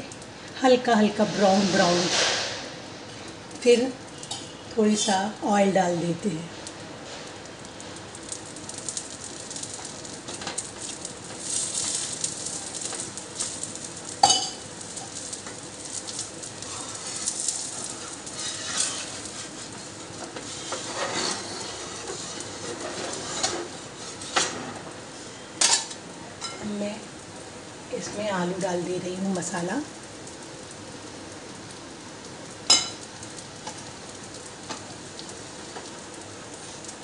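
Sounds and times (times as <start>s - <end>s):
oil sizzling in a pan: 0.0s - 37.0s
spatula tapping and scraping pan: 18.4s - 24.6s.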